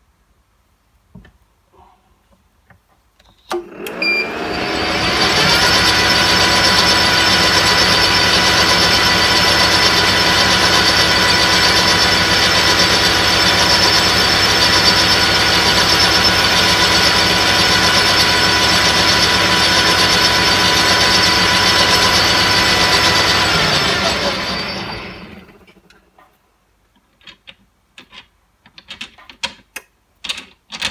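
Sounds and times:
metal lathe whining: 0:03.5 - 0:25.9
end mill cutting brass: 0:04.4 - 0:25.9.

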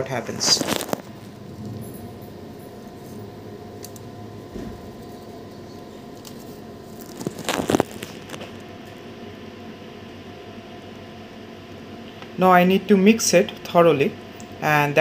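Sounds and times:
lab equipment humming: 0:00.0 - 0:15.0
thin constant tone: 0:01.1 - 0:07.0.

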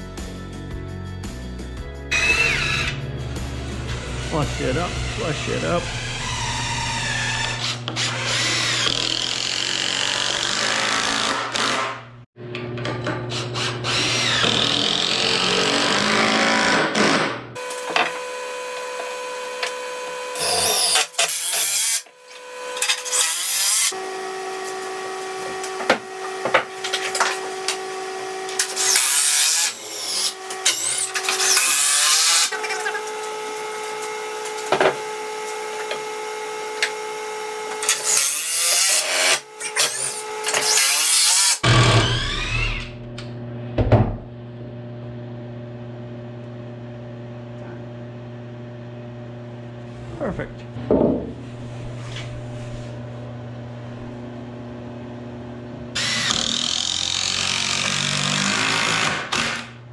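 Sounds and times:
steady low hum: 0:02.1 - 0:07.8
steady background tones: 0:02.9 - 0:06.2
cordless drill driving screws: 0:04.6 - 0:11.9, 0:13.3 - 0:17.0, 0:37.8 - 0:43.0, 0:56.0 - 0:59.7.

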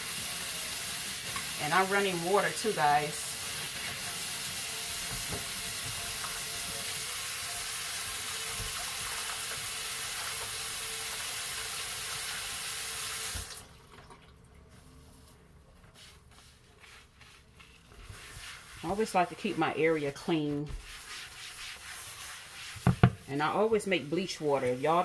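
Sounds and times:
faucet running water into sink: 0:00.0 - 0:14.1.

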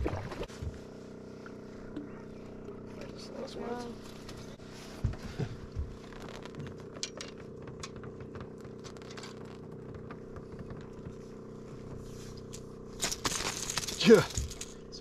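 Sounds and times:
boat motor humming: 0:00.0 - 0:15.0
net and tackle clicks and rattles: 0:06.0 - 0:11.1, 0:12.4 - 0:15.0.

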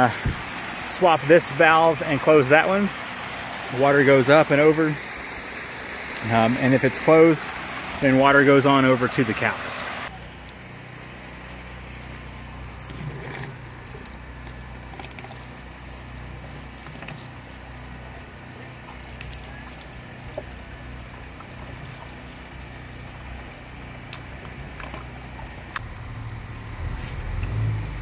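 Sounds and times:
low steady hum: 0:09.4 - 0:28.0
cow drinking: 0:11.5 - 0:27.7.

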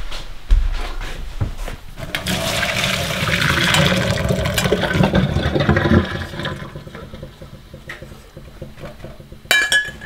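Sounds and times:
liquid pouring into a sink: 0:02.0 - 0:09.3.

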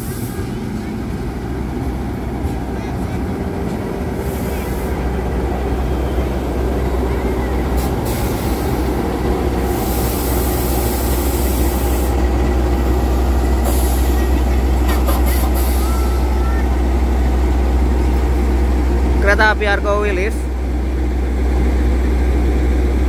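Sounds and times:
diesel locomotive engine rumble: 0:00.0 - 0:23.0
air hissing: 0:07.8 - 0:16.2.

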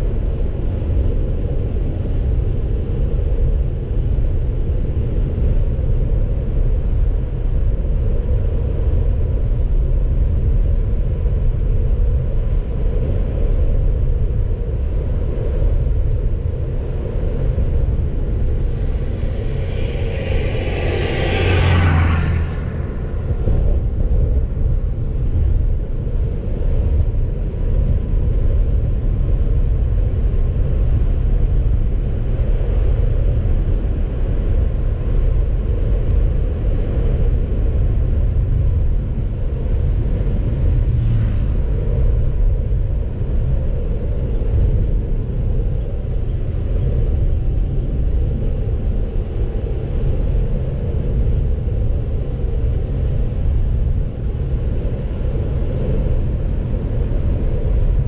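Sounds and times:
car driving rumble: 0:16.0 - 0:25.1, 0:39.8 - 0:43.6.

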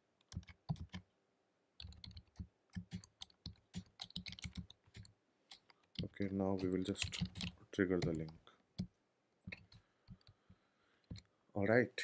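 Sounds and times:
typing on computer keyboard: 0:00.2 - 0:01.0, 0:01.8 - 0:06.1, 0:06.9 - 0:08.9.

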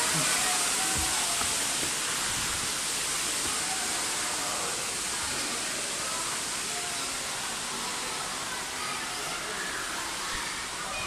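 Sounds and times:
rushing hiss: 0:00.0 - 0:06.7
faint voices of people: 0:00.0 - 0:11.0.

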